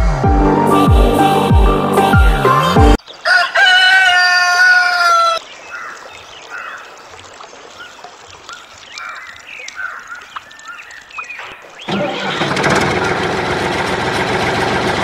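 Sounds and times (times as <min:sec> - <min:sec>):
rooster crowing: 0:03.1 - 0:05.4
small birds chirping: 0:05.0 - 0:13.2.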